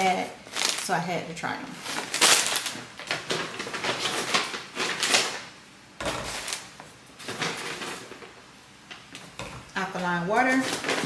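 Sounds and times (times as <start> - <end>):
plastic bags crinkling: 0.1 - 1.0, 1.7 - 5.5, 6.1 - 8.4.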